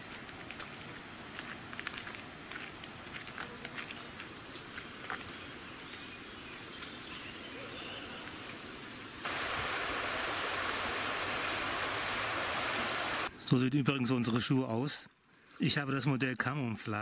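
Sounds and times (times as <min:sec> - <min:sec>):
footsteps crunching on gravel: 0:00.0 - 0:05.7
fast-flowing river rushing: 0:09.2 - 0:13.3.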